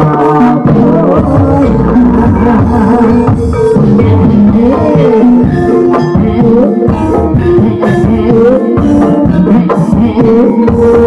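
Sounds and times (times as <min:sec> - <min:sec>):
hand drum strokes: 0:00.6 - 0:11.0
winding melody line: 0:01.0 - 0:08.7.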